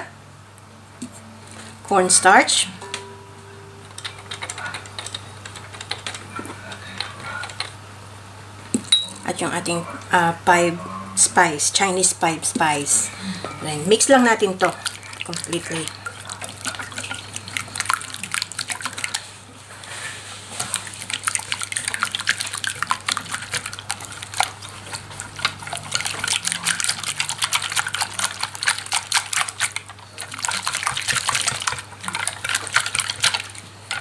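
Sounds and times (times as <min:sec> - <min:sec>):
whisk beating in a glass bowl: 0:13.9 - 0:19.3, 0:20.6 - 0:34.0.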